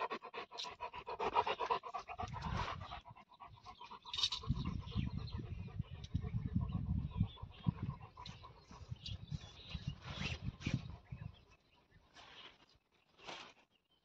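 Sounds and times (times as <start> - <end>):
dog panting: 0.0 - 9.6.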